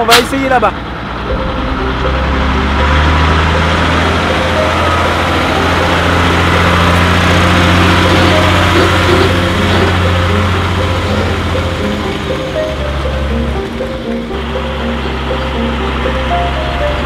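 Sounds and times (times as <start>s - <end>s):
truck engine running at low revs: 0.0s - 17.0s.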